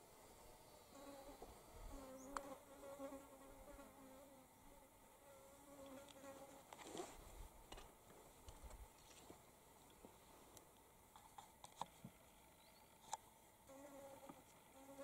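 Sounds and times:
insect buzzing: 0.2 - 6.7, 13.6 - 15.0.

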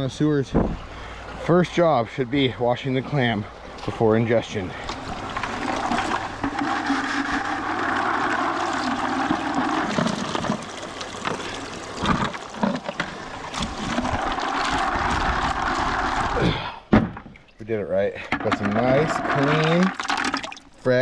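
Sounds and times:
creek water rushing and splashing: 0.9 - 16.4.

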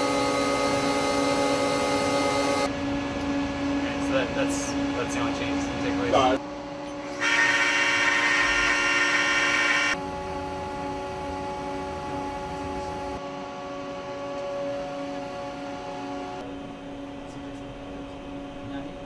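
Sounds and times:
milling machine whining: 0.0 - 2.7, 6.9 - 13.2.

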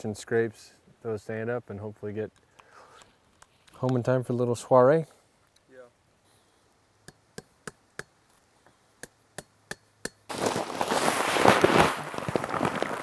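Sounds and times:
dense rustling and crunching: 10.3 - 13.0.

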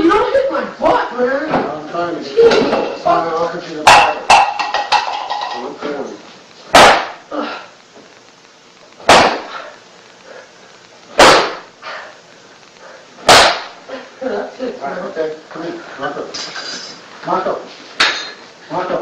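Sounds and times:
person crying out: 7.3 - 7.8.

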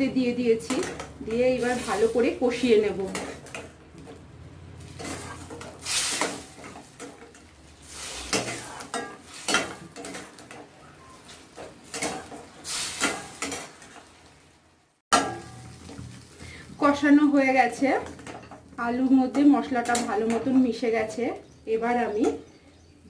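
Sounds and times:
low sizzle: 0.0 - 23.0
metal spatula scraping pan: 0.6 - 4.2, 4.8 - 14.0.

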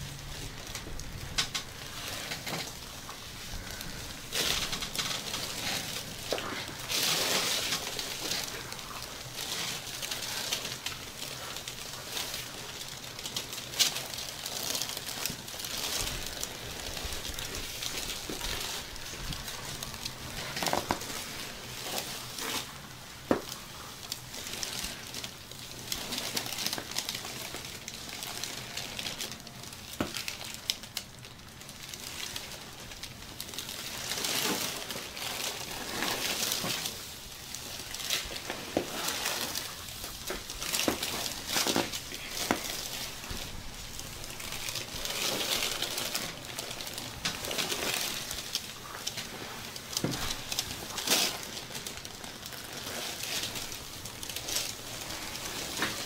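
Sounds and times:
fabric rustling and rubbing: 33.6 - 56.0.

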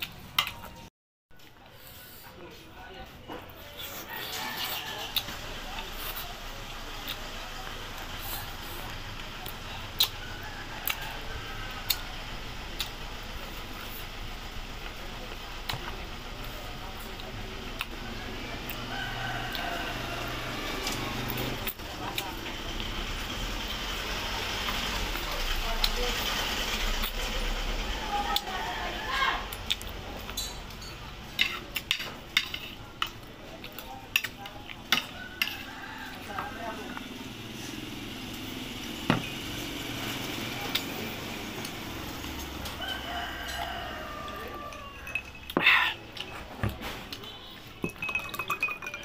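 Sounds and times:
chewing and eating smacks: 8.0 - 10.2, 29.5 - 30.4, 40.2 - 43.9
man chewing and sucking: 8.0 - 11.1, 29.5 - 30.4.

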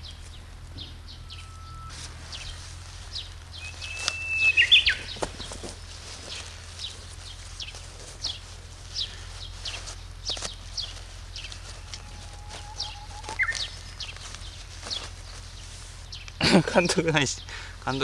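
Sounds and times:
bird chirping: 0.0 - 18.0.

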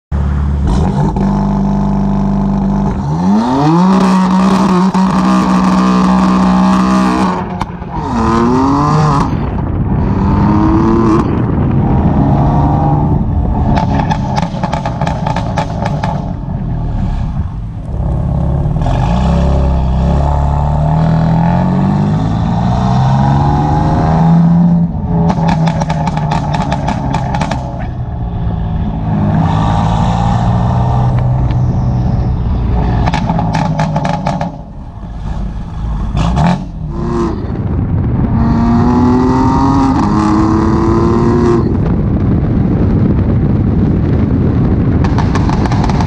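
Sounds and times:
car engine revving and accelerating: 0.2 - 41.9
exhaust pops and crackles: 13.1 - 16.7, 25.0 - 28.1, 41.6 - 46.0.

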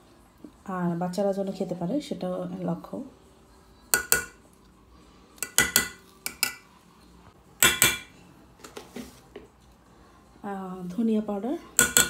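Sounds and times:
metal spoon clinking on cookware: 4.0 - 4.4, 5.4 - 6.7, 7.6 - 8.1, 11.6 - 12.0.

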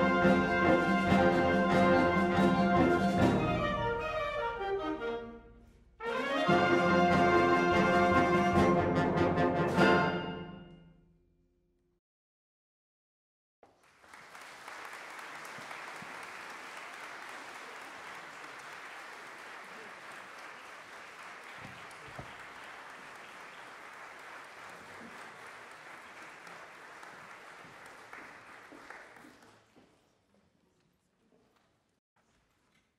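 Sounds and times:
audience applauding: 13.6 - 29.8.

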